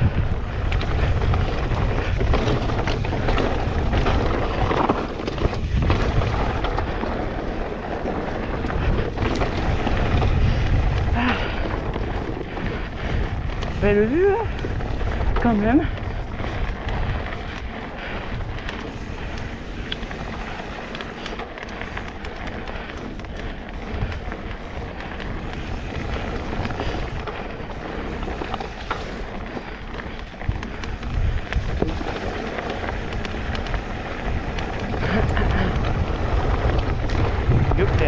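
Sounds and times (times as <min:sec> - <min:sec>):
bike tyres rattling over dirt: 0:00.0 - 0:38.0.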